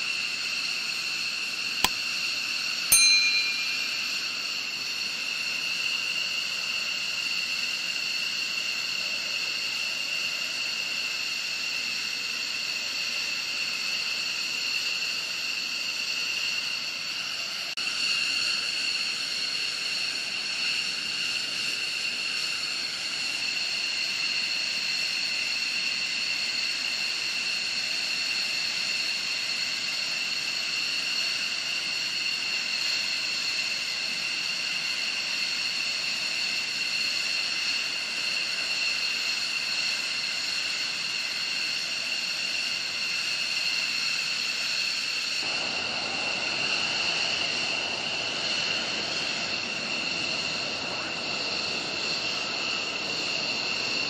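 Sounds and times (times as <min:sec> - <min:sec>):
jet engines idling with whine: 0:00.0 - 0:54.0.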